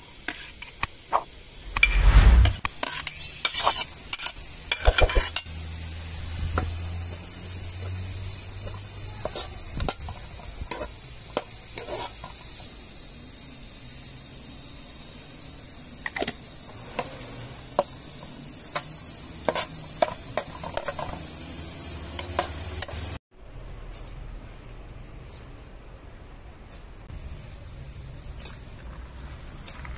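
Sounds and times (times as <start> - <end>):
onions sizzling in oil: 2.8 - 23.2.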